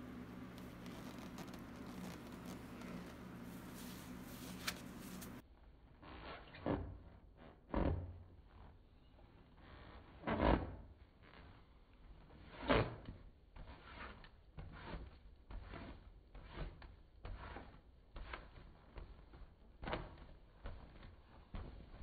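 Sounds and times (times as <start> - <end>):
razor scraping lathered balloon: 0.5 - 5.4.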